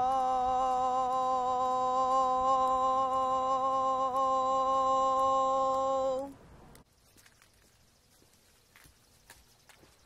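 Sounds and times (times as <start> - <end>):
long held hummed tone: 0.0 - 6.4.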